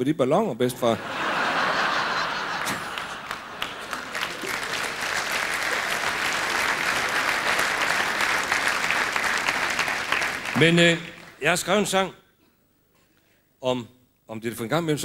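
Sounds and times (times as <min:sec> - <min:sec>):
audience applauding: 0:01.2 - 0:11.4.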